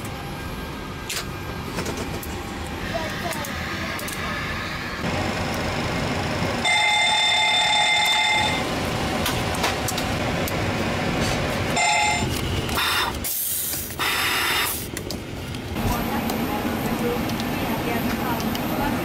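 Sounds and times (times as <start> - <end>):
cockpit fans humming: 0.0 - 19.0
fire warning bell ringing: 6.6 - 8.9, 11.8 - 12.4.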